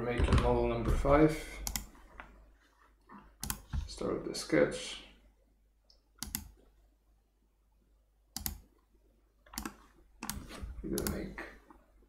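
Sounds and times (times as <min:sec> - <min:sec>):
computer mouse clicking: 0:01.6 - 0:02.0, 0:03.4 - 0:03.7, 0:05.9 - 0:06.6, 0:08.3 - 0:08.7, 0:09.5 - 0:11.2.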